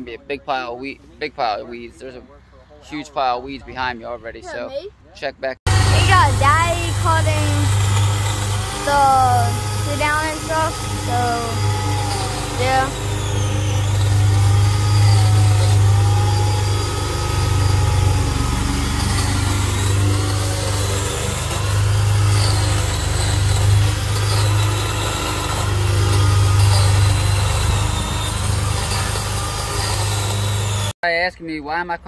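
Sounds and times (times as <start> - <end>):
electric chainsaw cutting brush: 5.7 - 31.0.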